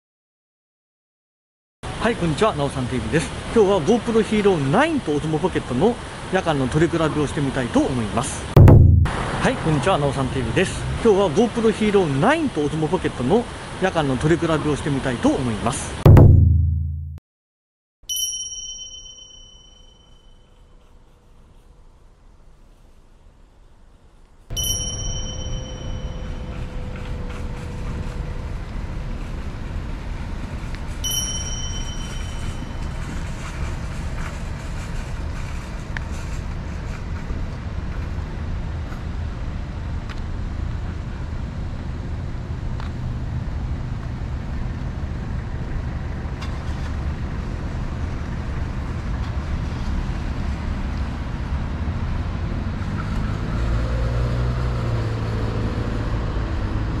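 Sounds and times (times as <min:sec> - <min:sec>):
road traffic rumble: 0:01.9 - 0:08.5, 0:09.1 - 0:16.0, 0:24.6 - 0:31.0, 0:32.3 - 0:57.0
high ringing tones: 0:18.1 - 0:20.7, 0:24.5 - 0:27.0, 0:31.0 - 0:33.2.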